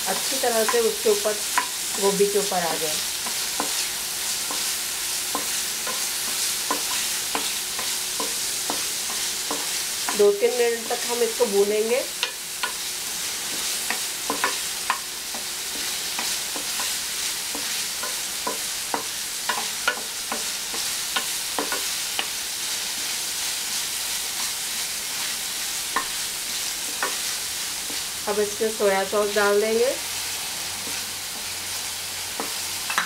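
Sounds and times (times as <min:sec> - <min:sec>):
vegetables sizzling in oil: 0:00.0 - 0:33.0
spatula scraping and tapping pan: 0:00.1 - 0:02.1, 0:03.2 - 0:11.2, 0:12.2 - 0:22.4, 0:24.3 - 0:28.2, 0:32.3 - 0:33.0.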